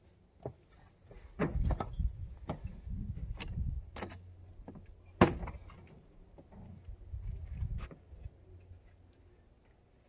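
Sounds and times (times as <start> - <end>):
scrap metal knocks and clunks: 1.2 - 6.8.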